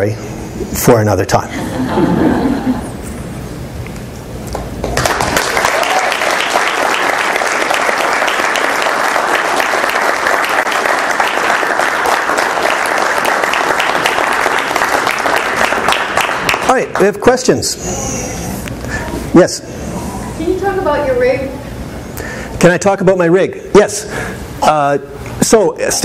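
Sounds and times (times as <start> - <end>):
audience applauding: 4.5 - 17.2.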